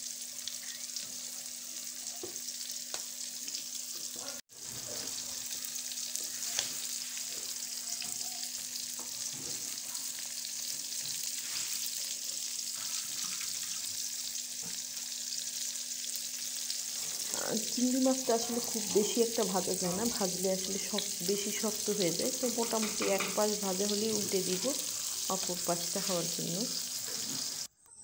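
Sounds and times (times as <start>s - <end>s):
prawns sizzling in hot oil: 0.0s - 27.7s
small crackles: 2.8s - 14.8s.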